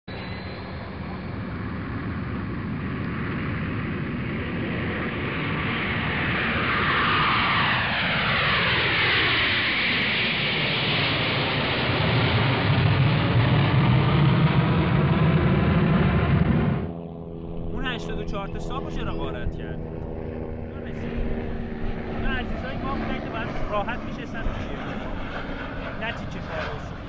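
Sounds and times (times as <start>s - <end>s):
aircraft passing overhead: 0.1s - 27.0s
descending whine: 0.1s - 27.0s
deep rumble: 12.4s - 27.0s.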